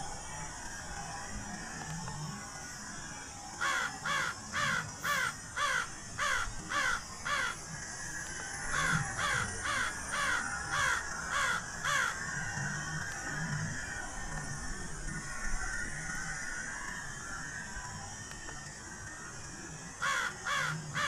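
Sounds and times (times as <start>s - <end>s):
crow cawing: 3.6s - 7.6s, 8.7s - 12.3s, 20.0s - 21.0s.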